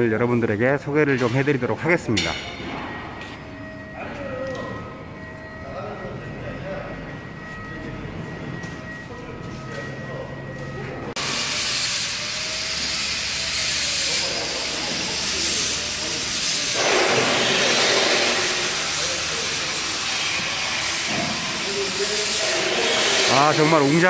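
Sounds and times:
loud steady hiss: 0:11.2 - 0:24.0.

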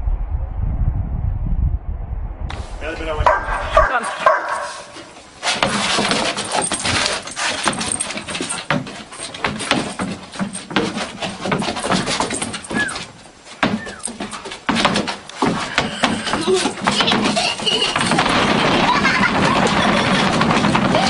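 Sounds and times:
dog claws on wooden deck: 0:03.2 - 0:21.0
brief squeak: 0:12.6 - 0:13.1, 0:13.8 - 0:14.1.

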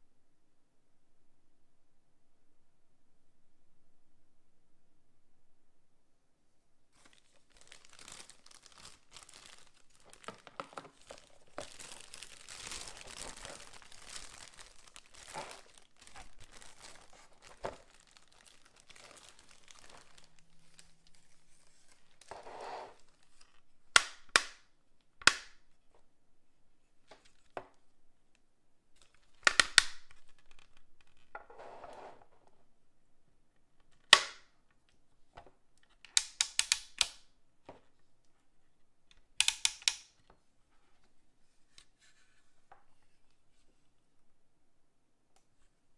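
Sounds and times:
plastic bag crinkling: 0:07.0 - 0:23.7
hard plastic clicks: 0:39.1 - 0:40.1.

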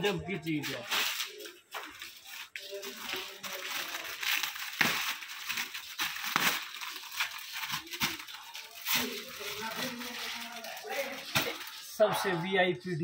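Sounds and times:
plastic packaging crinkling: 0:00.0 - 0:12.4.

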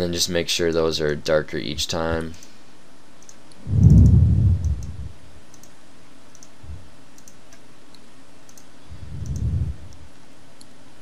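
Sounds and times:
computer mouse clicks: 0:03.2 - 0:06.6, 0:07.2 - 0:10.0.

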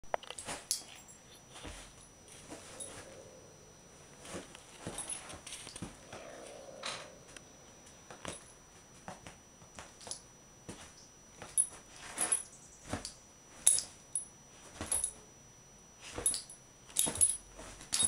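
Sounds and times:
puppy scuffling: 0:00.3 - 0:03.1, 0:04.0 - 0:06.2.

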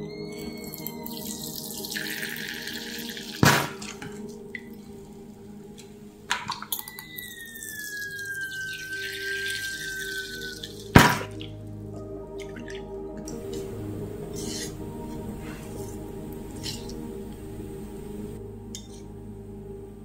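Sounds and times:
liquid splashing and dripping: 0:06.3 - 0:13.7.

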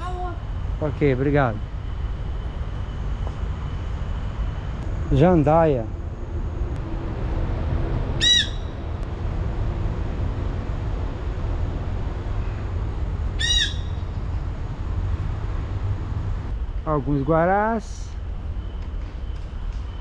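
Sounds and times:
low rumble of city traffic: 0:00.0 - 0:20.0
parakeet squawking: 0:08.2 - 0:08.8, 0:13.4 - 0:14.0.

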